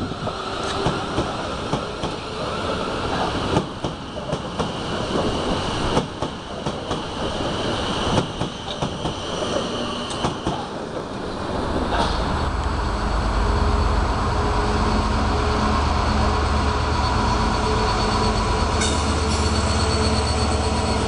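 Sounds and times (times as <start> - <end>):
train running noise: 0.0 - 21.0
train wheels clicking over rail joints: 0.6 - 11.1.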